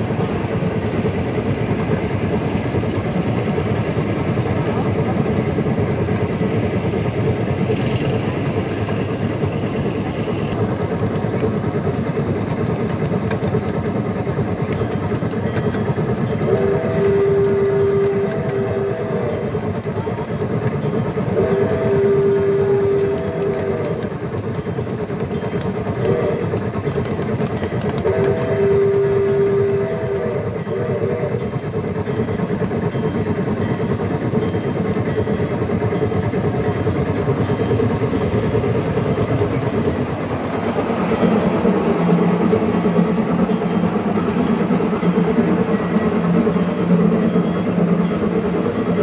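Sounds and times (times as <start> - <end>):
wheels rumbling on rail: 0.0 - 49.0
steam locomotive whistle: 16.3 - 19.6, 21.3 - 24.1, 26.0 - 26.6, 28.0 - 31.5.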